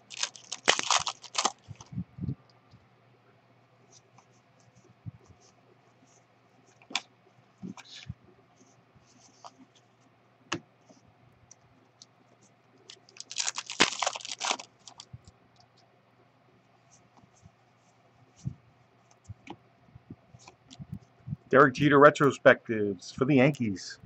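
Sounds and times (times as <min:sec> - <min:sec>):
cards shuffled by hand: 0:00.0 - 0:01.9, 0:12.9 - 0:15.1.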